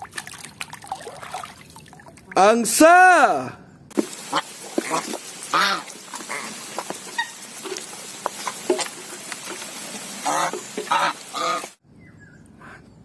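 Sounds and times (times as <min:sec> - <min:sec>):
geese bills clicking and slurping: 0:04.0 - 0:11.8
geese honking: 0:04.2 - 0:08.9, 0:10.1 - 0:11.8.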